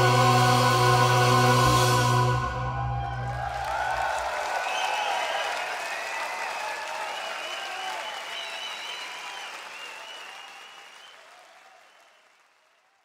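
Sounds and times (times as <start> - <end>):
audience applauding and cheering: 1.7 - 13.0
whistles: 2.8 - 12.4.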